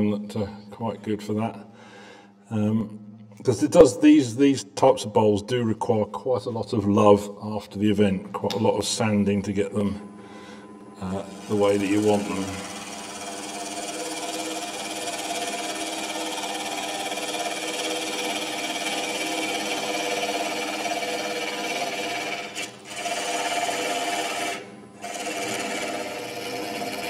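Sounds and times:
tool cutting spinning wood: 11.1s - 27.0s
wood lathe running: 11.1s - 27.0s.

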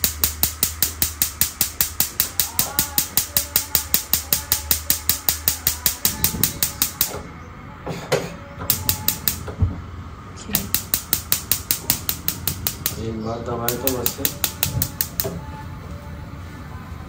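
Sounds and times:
gas hob igniter clicking: 0.0s - 7.2s, 8.7s - 9.5s, 10.6s - 13.0s, 13.6s - 15.3s.

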